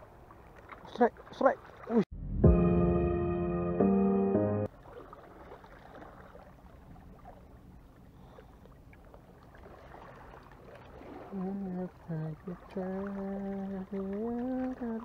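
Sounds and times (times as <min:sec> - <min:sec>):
musical jingle: 0:02.2 - 0:04.7
small waves lapping on rocks: 0:04.7 - 0:07.5, 0:08.1 - 0:15.0.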